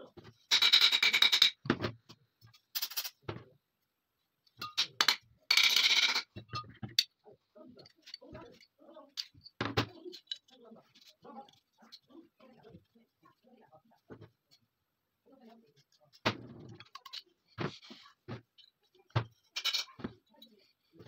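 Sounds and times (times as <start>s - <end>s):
small metal clicks and knocks: 7.8s - 12.1s, 15.9s - 17.4s.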